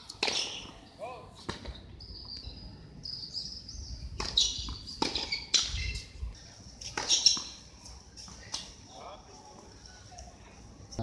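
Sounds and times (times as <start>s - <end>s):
sneakers squeaking on court: 0.2s - 6.1s, 6.8s - 7.6s.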